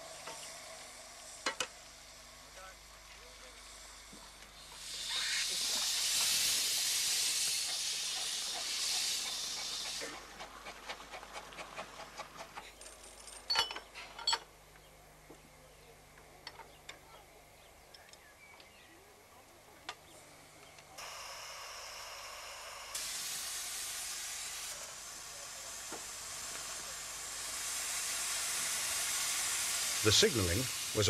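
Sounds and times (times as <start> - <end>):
steam hissing from locomotive: 0.0 - 12.6, 21.0 - 31.0.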